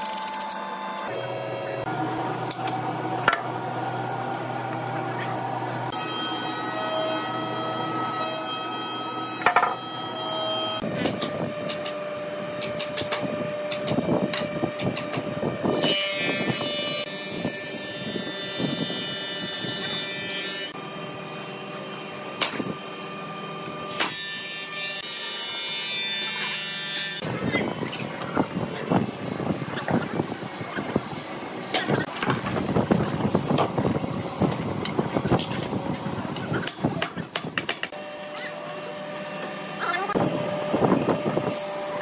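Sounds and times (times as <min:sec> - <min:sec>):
machinery humming: 0:00.0 - 0:10.1.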